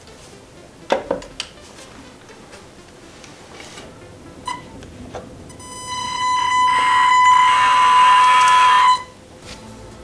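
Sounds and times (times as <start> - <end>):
hydraulic pump whining: 5.5 - 9.2.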